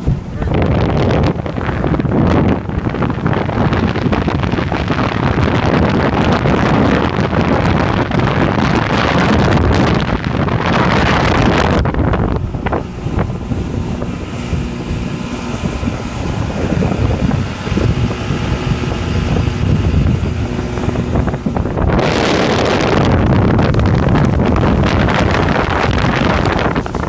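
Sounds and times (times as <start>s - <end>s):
outboard motor running: 0.0s - 27.0s
wind buffeting microphone: 0.0s - 27.0s.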